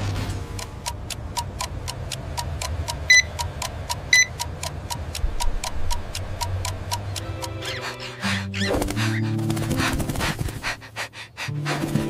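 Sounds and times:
rapid electronic ticking: 0.1 - 8.2
high warning beeps: 3.0 - 3.5, 4.1 - 4.4.

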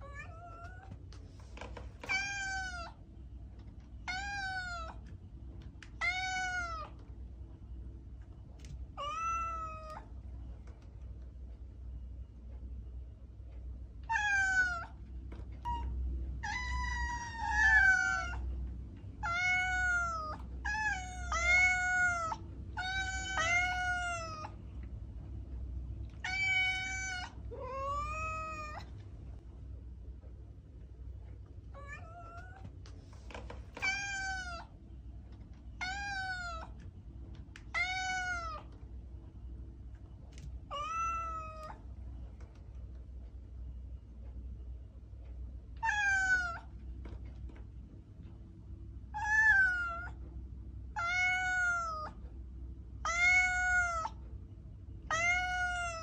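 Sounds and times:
cat meowing: 0.0 - 1.0, 2.0 - 3.0, 4.0 - 5.0, 5.9 - 7.0, 9.0 - 10.1, 14.0 - 15.0, 15.6 - 18.5, 19.2 - 24.6, 26.2 - 28.9, 31.7 - 32.7, 33.7 - 34.7, 35.8 - 36.8, 37.6 - 38.7, 40.7 - 41.8, 45.8 - 46.7, 49.1 - 50.2, 51.0 - 52.2, 53.0 - 54.2, 55.0 - 56.0.

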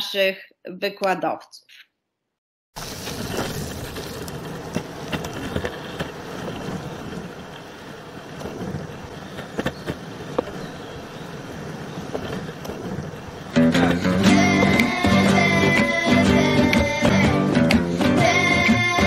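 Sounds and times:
longboard wheels rolling on asphalt: 2.8 - 19.0
longboard clacks: 4.0 - 10.7
guitar music: 13.5 - 19.0.

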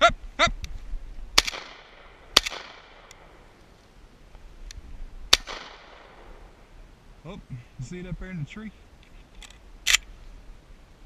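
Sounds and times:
short voice-like cry: 0.0 - 0.6
shotgun shots echoing: 1.4 - 3.4, 5.3 - 6.4.

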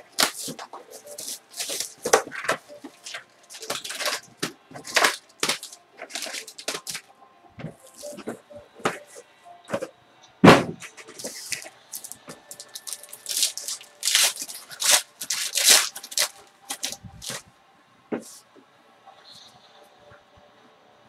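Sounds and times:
cellophane wrap crinkling: 0.0 - 7.1, 7.8 - 8.3, 11.0 - 17.4.

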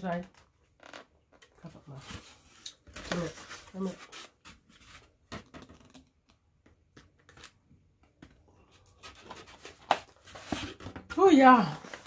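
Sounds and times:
food containers rustling: 8.8 - 12.0.

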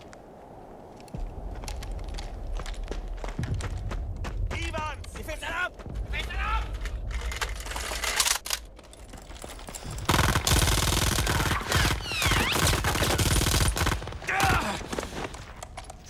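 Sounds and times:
automatic machine-gun fire: 10.1 - 14.1.

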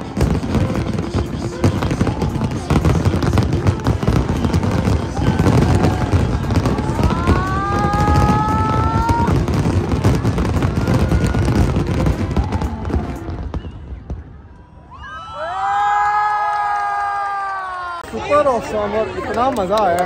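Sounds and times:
firework whistle: 0.0 - 14.4
fireworks crackling and banging: 0.0 - 14.5.

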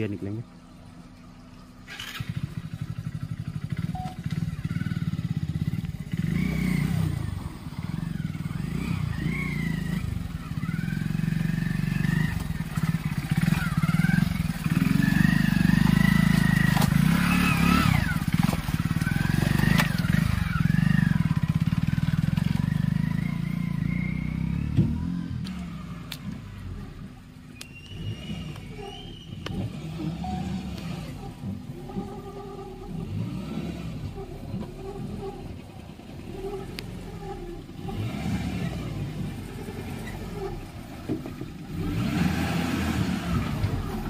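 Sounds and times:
motorcycle engine revving: 1.8 - 44.0.

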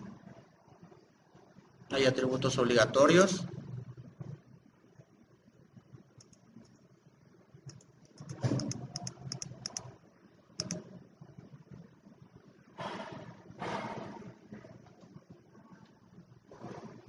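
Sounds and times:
computer mouse clicks: 6.2 - 6.8, 7.6 - 10.0, 10.6 - 10.9
keyboard key taps: 10.6 - 10.8.

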